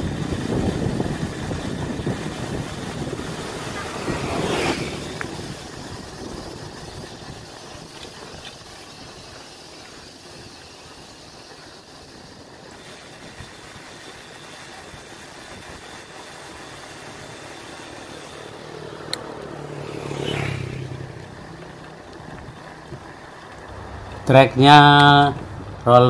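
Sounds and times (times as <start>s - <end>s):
motorcycle passing by: 0.0s - 8.4s, 17.0s - 26.0s
wind and road noise: 0.0s - 26.0s.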